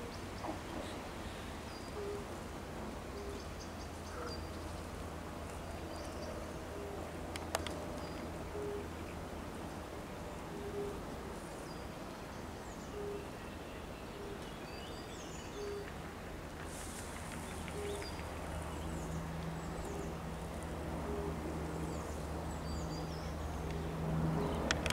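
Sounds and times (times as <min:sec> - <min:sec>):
low steady drone: 0:00.0 - 0:24.9
birds chirping: 0:10.7 - 0:24.9.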